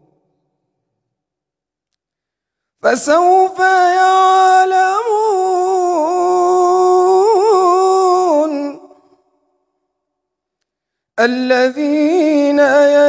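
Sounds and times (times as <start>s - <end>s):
man reciting melodically: 2.7s - 9.2s, 11.2s - 13.0s.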